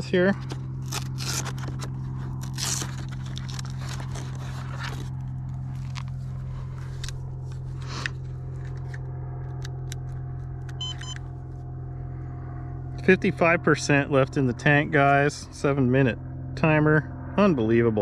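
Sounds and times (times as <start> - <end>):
steady low hum: 0.0 - 18.0
battery pack and wires scraping: 0.4 - 10.2.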